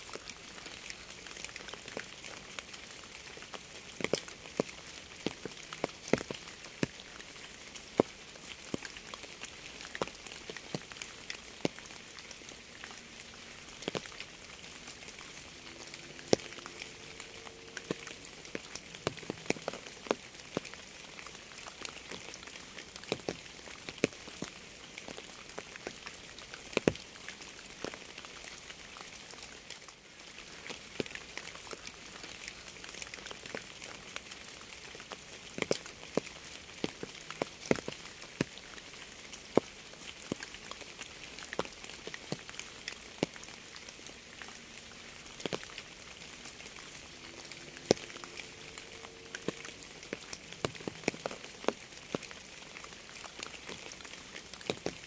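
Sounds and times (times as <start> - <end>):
steady rain: 0.0 - 55.0
raindrops tapping hard surface: 0.8 - 11.9, 12.9 - 28.2, 30.6 - 55.0.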